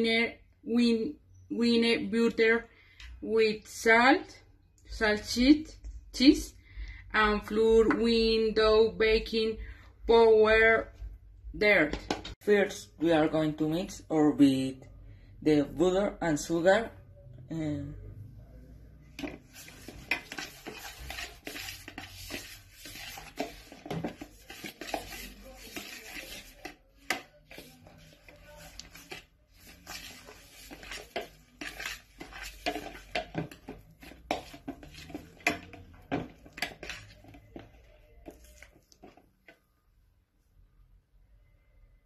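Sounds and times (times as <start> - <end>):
spoon scraping a plastic bowl: 19.1 - 39.6.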